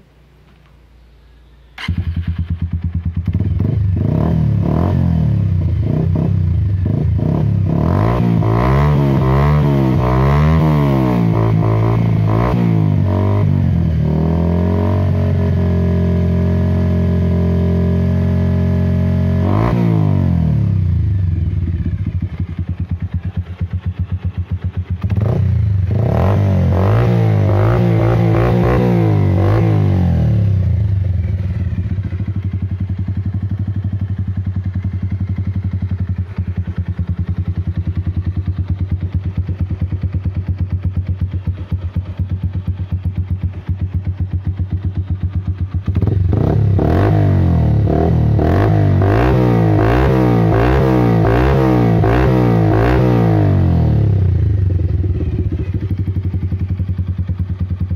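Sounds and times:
motorcycle engine idling and revving: 0.0 - 57.9.

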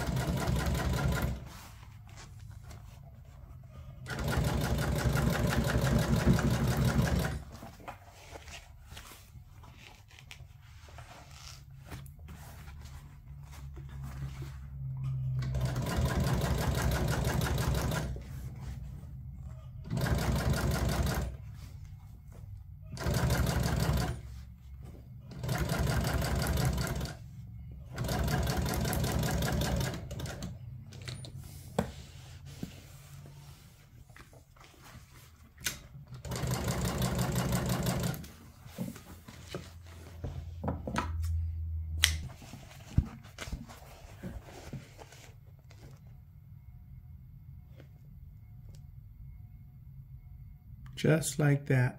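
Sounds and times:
sewing machine stitching: 0.0 - 1.5, 4.0 - 7.6, 15.4 - 18.2, 19.8 - 21.4, 22.9 - 24.2, 25.3 - 27.2, 27.9 - 30.6, 36.1 - 38.3.

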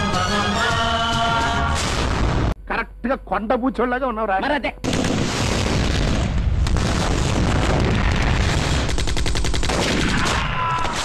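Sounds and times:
automatic gunfire: 6.8 - 11.0.

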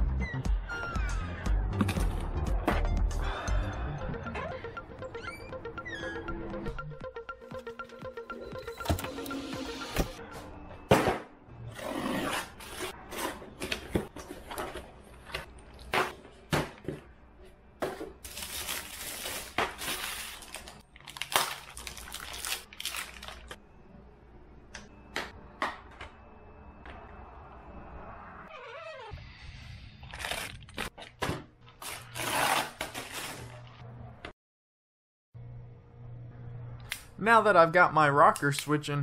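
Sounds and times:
cardboard tearing and crinkling: 18.3 - 23.6, 30.1 - 31.1, 31.8 - 33.6.

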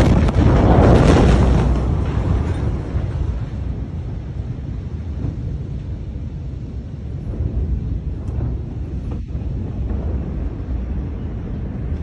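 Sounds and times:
explosion blast: 0.0 - 5.7
steady low rumble: 0.0 - 12.0.

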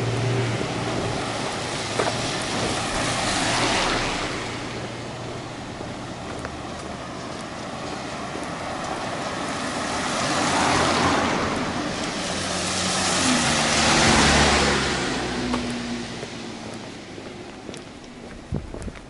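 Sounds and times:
road vehicles passing: 0.0 - 19.0.

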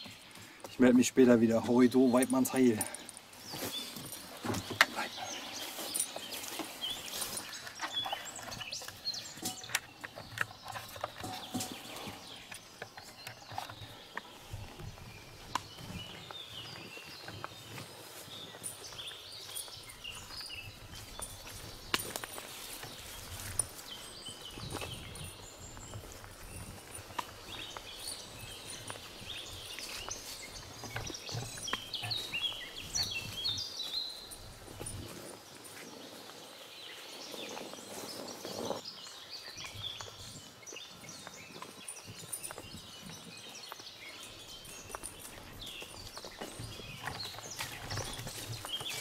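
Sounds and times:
footsteps on grassy track: 0.0 - 49.0
small birds chirping: 0.0 - 49.0.

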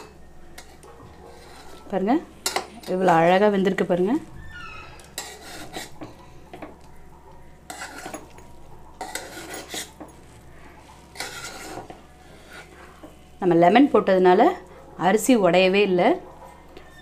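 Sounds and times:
spatula scraping metal pot: 0.6 - 3.4, 4.9 - 6.0, 7.7 - 8.3, 9.0 - 10.0, 11.1 - 13.2.

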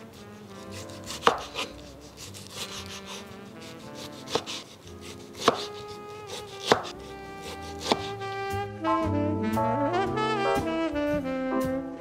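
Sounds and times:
knife chopping on wooden board: 0.7 - 8.2.

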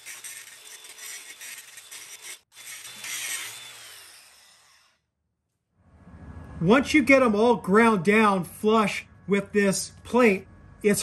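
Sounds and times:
angle grinder grinding metal: 0.0 - 5.1.

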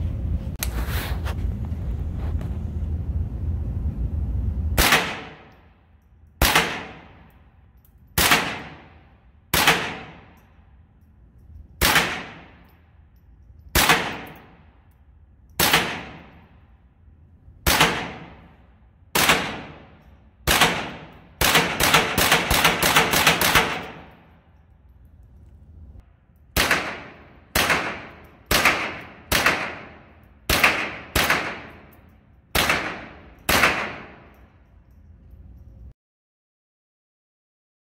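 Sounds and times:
rifle shots echoing indoors: 4.8 - 25.3, 26.2 - 34.6.

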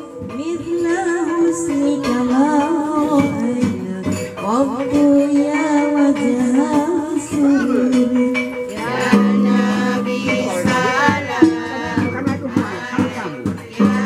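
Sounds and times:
women singing slow melody: 0.0 - 14.0.

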